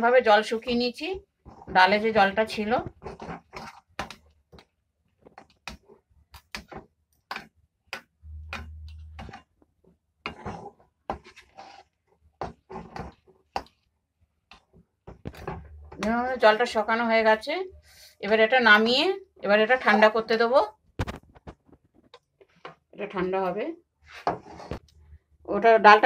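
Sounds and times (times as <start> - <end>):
metal spatula scraping a pan: 1.4 - 4.3, 8.3 - 9.5, 10.2 - 13.7, 24.0 - 24.8
low hum: 8.2 - 9.2.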